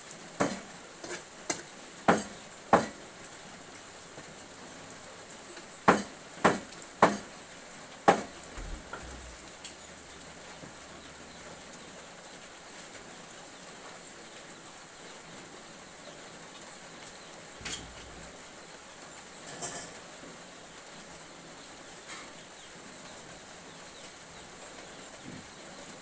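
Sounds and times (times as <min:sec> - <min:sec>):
faint steady hiss: 0:00.0 - 0:26.0
metal utensil clanking on wok: 0:00.5 - 0:01.6, 0:17.6 - 0:18.1, 0:19.4 - 0:20.0.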